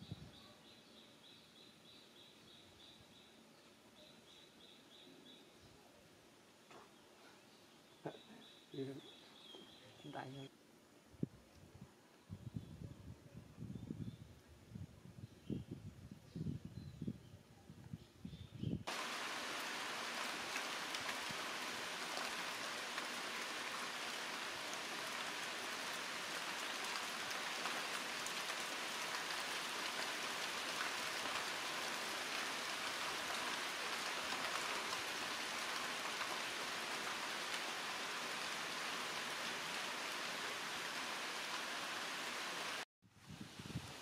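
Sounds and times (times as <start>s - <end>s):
rain pattering on leaves: 18.9s - 42.8s.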